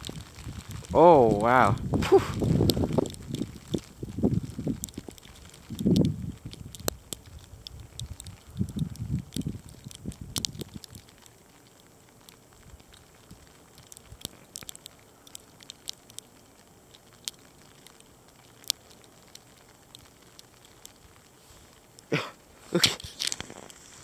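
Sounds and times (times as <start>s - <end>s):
wind buffeting microphone: 0.0s - 11.0s
graupel pellets ticking: 0.0s - 24.0s.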